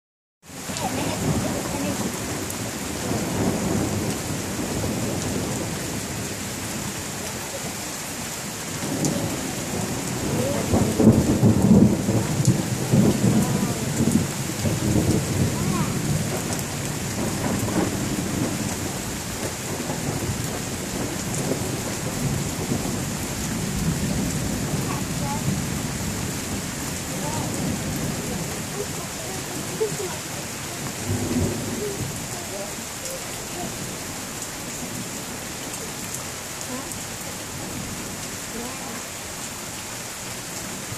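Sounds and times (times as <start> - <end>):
steady rain: 0.4 - 40.9
thunder rolling: 0.8 - 7.6, 8.8 - 32.8.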